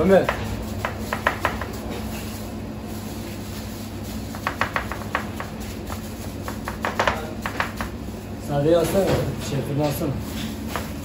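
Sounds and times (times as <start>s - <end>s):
toppings tapping on dough: 0.1s - 1.8s, 4.3s - 8.0s.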